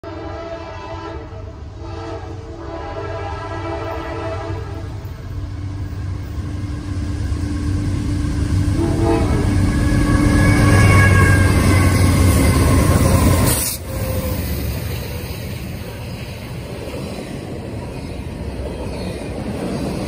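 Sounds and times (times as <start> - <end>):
locomotive air horn blasts: 0.0 - 5.0, 8.8 - 12.2
locomotive engine rumble: 3.4 - 20.0.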